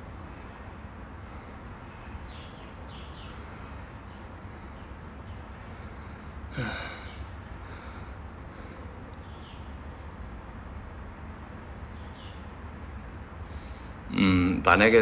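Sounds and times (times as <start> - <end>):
low room hum: 0.0 - 15.0
faint breaths: 0.2 - 2.2, 3.2 - 10.1, 13.4 - 14.1.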